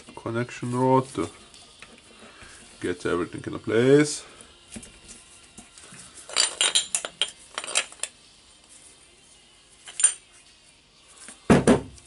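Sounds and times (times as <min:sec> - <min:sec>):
metal gearbox parts clinking: 0:06.3 - 0:08.2, 0:09.8 - 0:10.3.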